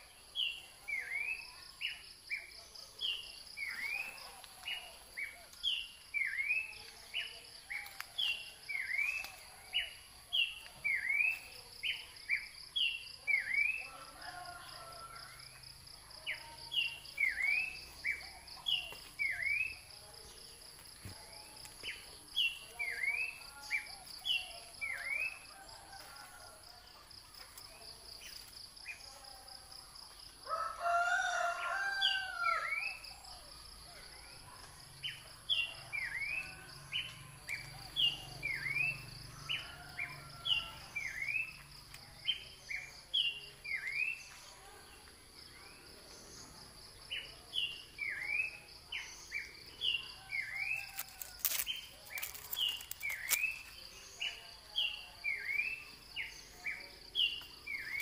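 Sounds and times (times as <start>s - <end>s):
rooster crowing: 30.5s - 33.0s.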